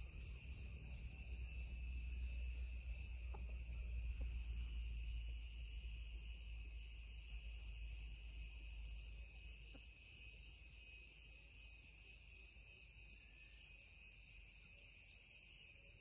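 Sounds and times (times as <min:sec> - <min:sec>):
shrill insect chorus: 0:00.0 - 0:16.0.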